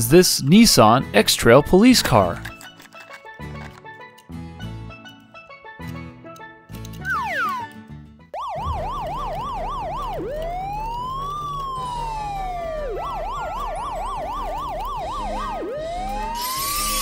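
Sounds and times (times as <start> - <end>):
police siren yelping and wailing: 8.4 - 17.0.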